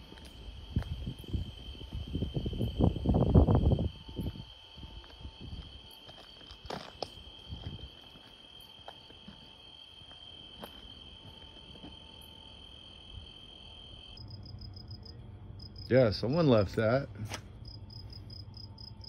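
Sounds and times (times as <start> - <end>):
footsteps on brushy trail: 0.0 - 1.9, 3.9 - 12.4
crickets chirping: 0.0 - 19.0.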